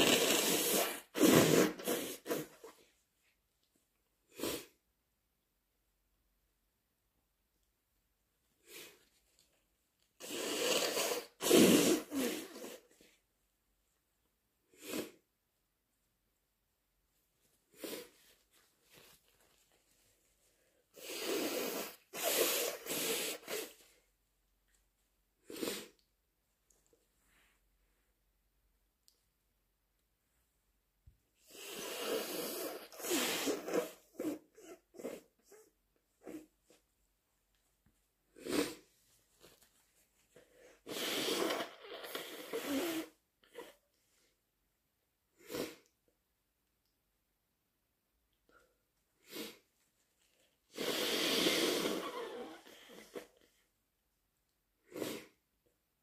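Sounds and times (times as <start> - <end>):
person sneezing: 0.0 - 2.7
person blowing nose: 0.0 - 2.9, 4.3 - 4.8, 8.6 - 9.2, 10.2 - 13.2, 14.7 - 15.2, 17.7 - 19.6, 20.5 - 24.1, 25.4 - 26.1, 31.4 - 36.8, 38.3 - 39.7, 40.3 - 43.8, 45.4 - 45.9, 49.2 - 49.8, 50.7 - 53.6, 54.8 - 55.4.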